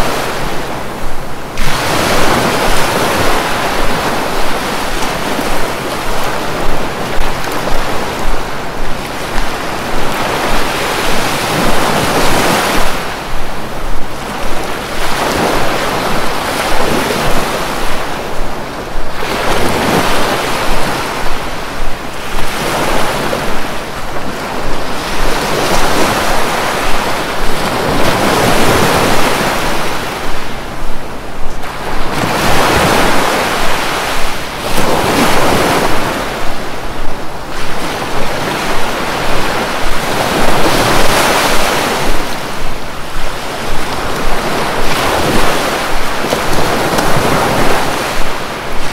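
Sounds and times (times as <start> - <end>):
sea waves breaking on shore: 0.0 - 48.9.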